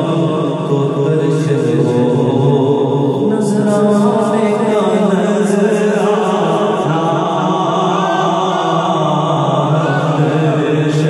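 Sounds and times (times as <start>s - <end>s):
man singing into a microphone: 0.0s - 11.0s.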